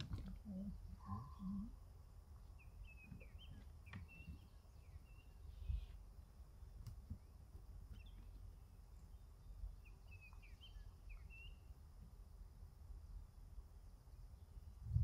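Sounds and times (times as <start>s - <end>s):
low steady rumble: 0.0s - 15.0s
high bird chirps: 9.8s - 11.7s.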